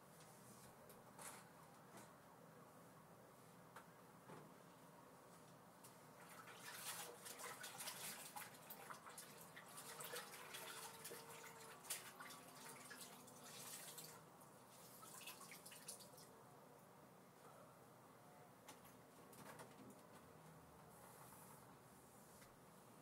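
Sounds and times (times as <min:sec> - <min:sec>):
cloth wrung out in water: 0:06.2 - 0:14.2.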